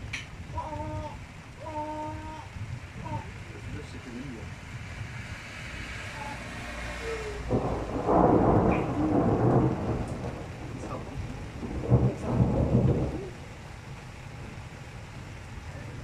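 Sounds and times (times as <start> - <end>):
steady rain: 0.0 - 16.0
thunder rumbling: 6.0 - 16.0.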